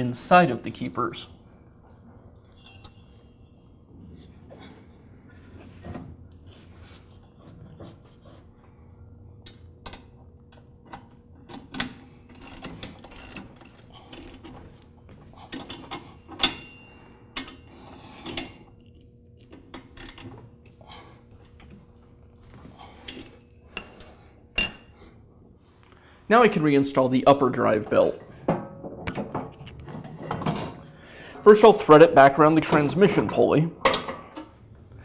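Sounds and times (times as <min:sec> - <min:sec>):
ratchet wrench clicking: 0:12.4 - 0:14.4.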